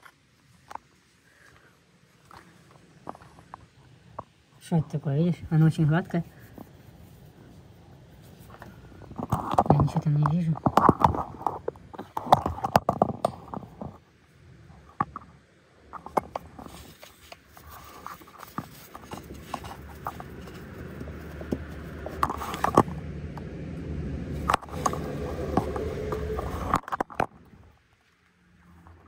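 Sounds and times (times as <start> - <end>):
phone handling clicks and scrapes: 10.6 - 14.0, 15.9 - 23.4
low steady rumble: 13.2 - 29.0.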